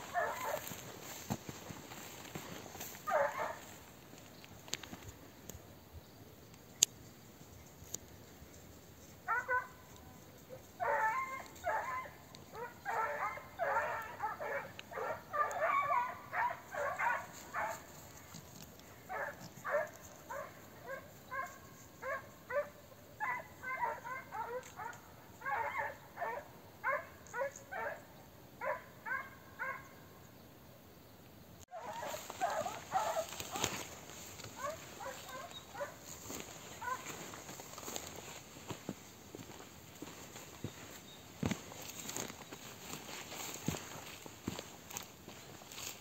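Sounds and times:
dogs yelping: 0.0 - 0.9, 2.3 - 3.8, 9.3 - 9.7, 10.8 - 17.9, 19.1 - 28.0, 31.7 - 38.2.

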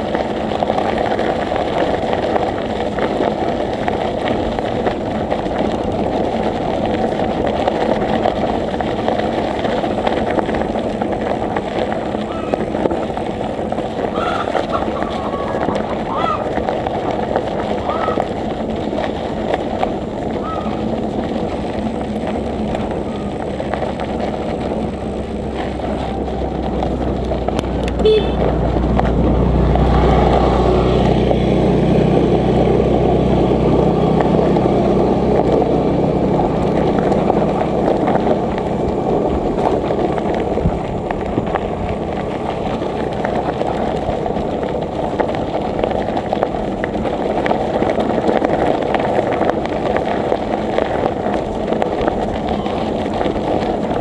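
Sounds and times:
vehicle engine passing: 0.0 - 54.0
wind and road noise: 0.0 - 54.0.

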